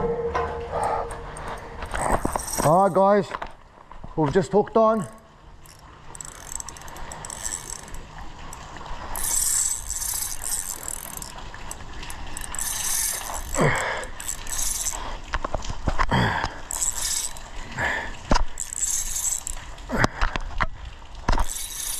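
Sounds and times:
fishing reel ratcheting and whirring: 0:01.4 - 0:03.1, 0:05.6 - 0:15.4, 0:16.6 - 0:19.9, 0:21.3 - 0:21.9.

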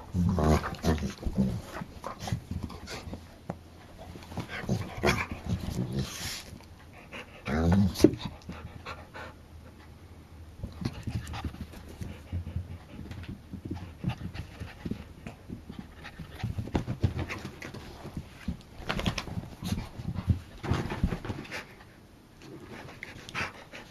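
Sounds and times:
dog panting: 0:00.1 - 0:03.3, 0:03.9 - 0:09.9, 0:10.7 - 0:18.5, 0:22.6 - 0:23.9.

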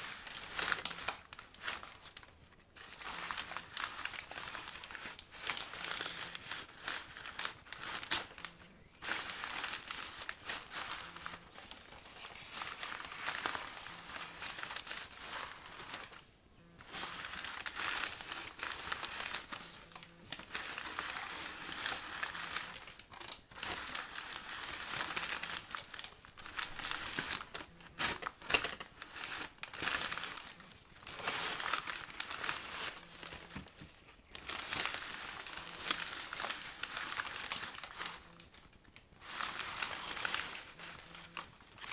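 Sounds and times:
paper bags rustling: 0:00.0 - 0:41.9.

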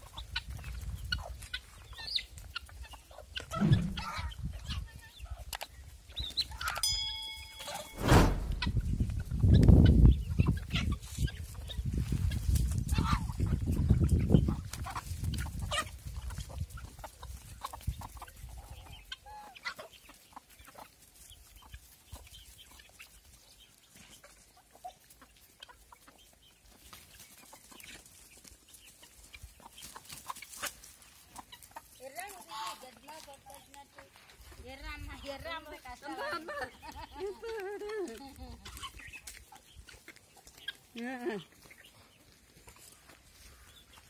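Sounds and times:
chickens clucking: 0:00.0 - 0:44.0
low rumble: 0:03.5 - 0:04.2, 0:08.0 - 0:09.2.

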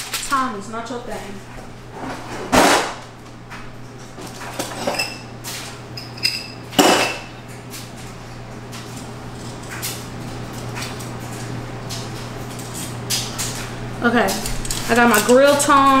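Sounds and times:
metal utensils clinking: 0:04.3 - 0:07.3, 0:12.6 - 0:16.0.

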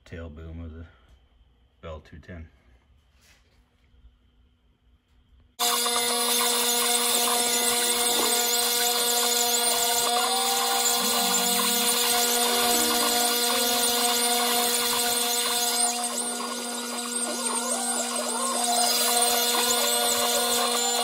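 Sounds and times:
router spindle whine: 0:05.6 - 0:21.0
stepper motors whining: 0:05.6 - 0:21.0.

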